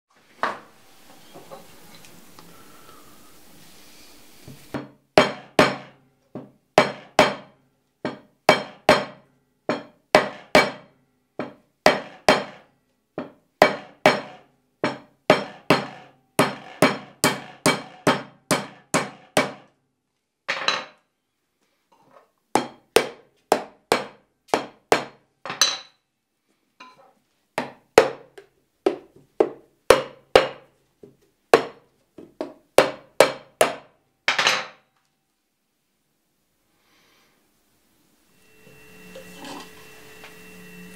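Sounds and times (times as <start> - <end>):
tool knocking on coconut: 11.4 - 12.6, 13.2 - 19.6.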